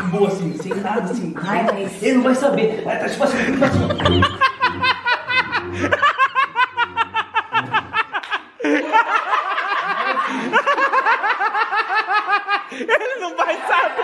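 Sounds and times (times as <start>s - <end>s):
man laughing hard: 3.3s - 14.0s.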